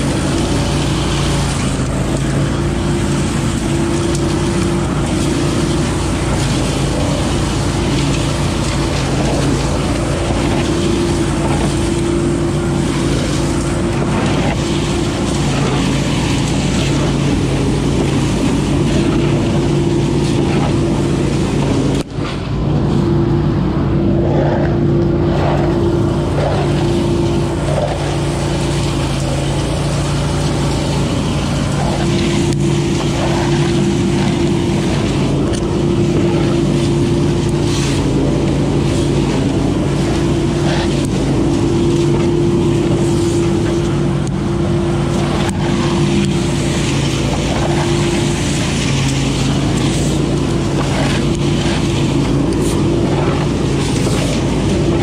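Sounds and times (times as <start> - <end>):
leaf vacuum engine humming: 0.0 - 55.0
rush of air and leaves: 0.0 - 55.0.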